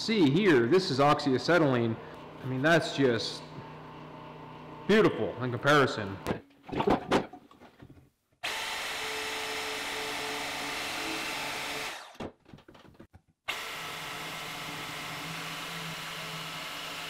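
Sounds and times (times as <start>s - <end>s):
portable bandsaw running: 8.4s - 12.2s, 13.5s - 17.0s.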